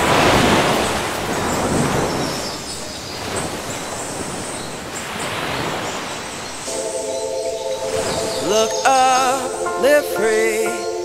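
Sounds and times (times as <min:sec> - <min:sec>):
surf washing onto beach: 0:00.0 - 0:06.9.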